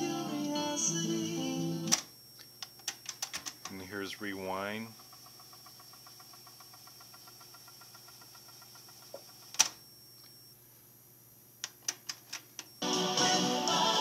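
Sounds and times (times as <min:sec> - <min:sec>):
cassette deck rewinding: 0:03.7 - 0:09.8.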